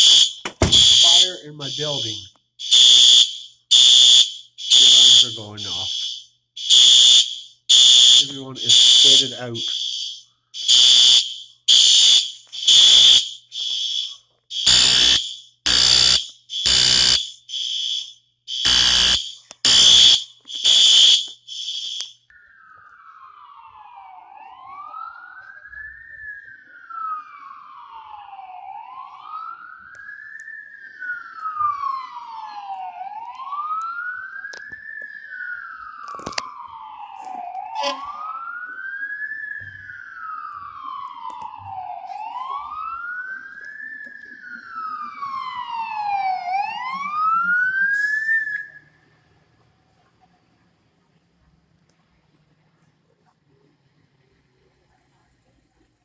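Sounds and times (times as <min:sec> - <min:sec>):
fire alarm horn blasts: 0:00.0 - 0:22.7, 0:37.6 - 0:38.5
emergency vehicle siren wailing: 0:00.0 - 0:49.4
faint second siren: 0:00.0 - 0:49.6.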